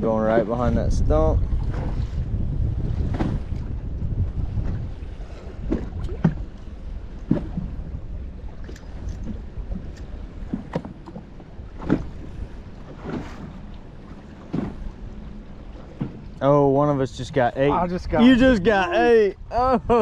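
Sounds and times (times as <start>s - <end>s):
wind rumble on microphone: 0.0s - 20.0s
short knocks on boat: 2.9s - 4.9s, 5.5s - 6.6s, 7.2s - 7.9s, 8.6s - 16.5s.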